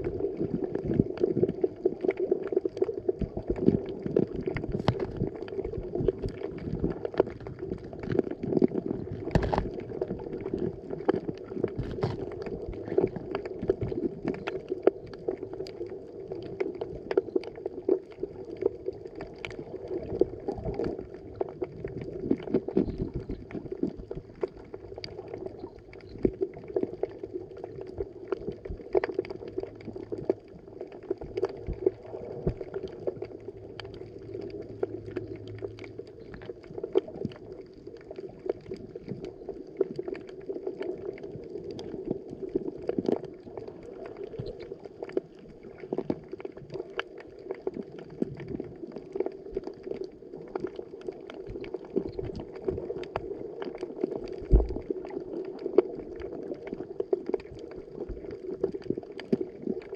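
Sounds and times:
muffled underwater rush: 0.0s - 59.9s
sharp clicks and pops: 3.2s - 15.8s, 50.6s - 55.0s.

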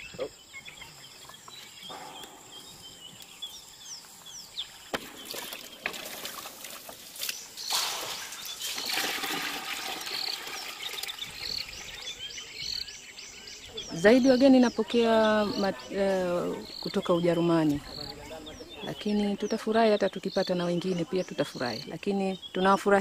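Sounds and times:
birds chirping: 0.0s - 23.0s
water splashing and pouring: 5.1s - 11.8s.

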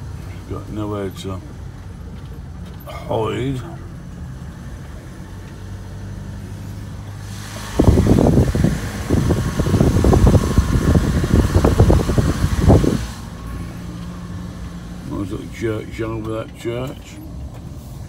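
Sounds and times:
van engine running: 0.0s - 18.0s
wind buffeting microphone: 7.3s - 13.3s.

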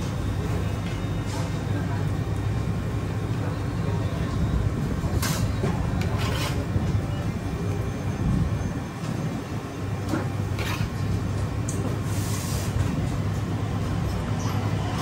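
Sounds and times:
spoon scraping ceramic platter: 6.0s - 6.7s.

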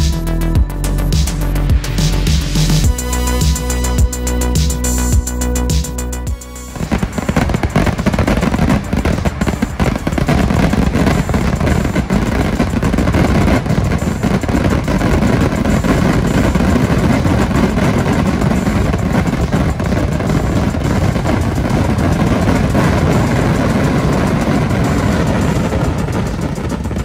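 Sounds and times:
fireworks exploding in a barrage: 6.8s - 27.0s.

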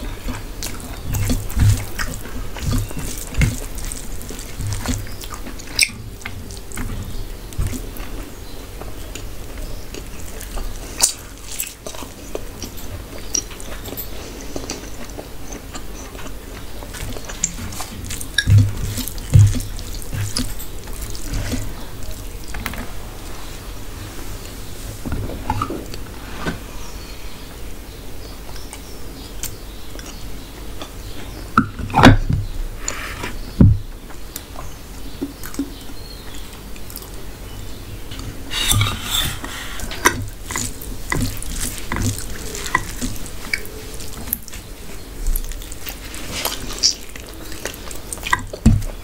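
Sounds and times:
hand mixing rice on metal plate: 0.0s - 14.2s, 15.8s - 24.9s, 38.2s - 49.0s
mouth sounds of eating: 0.0s - 26.0s, 34.3s - 49.0s.

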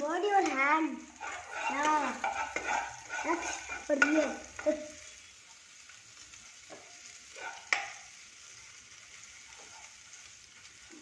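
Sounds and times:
paste sizzling in a wok: 0.0s - 11.0s
metal ladle scraping pan: 0.4s - 4.5s.

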